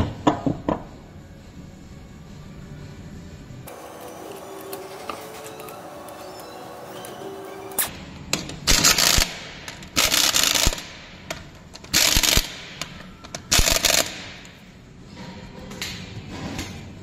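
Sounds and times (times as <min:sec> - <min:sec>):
impact wrench hammering: 0:08.4 - 0:14.5.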